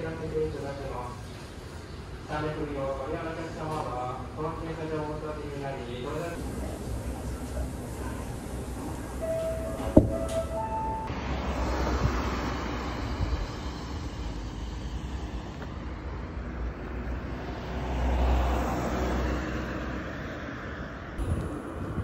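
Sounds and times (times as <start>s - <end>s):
jet engines rumbling with hiss: 6.1s - 16.4s.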